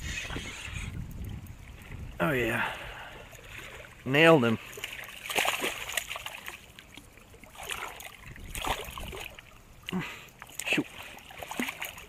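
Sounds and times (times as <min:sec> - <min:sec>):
fish splashing in water: 0:04.6 - 0:12.0.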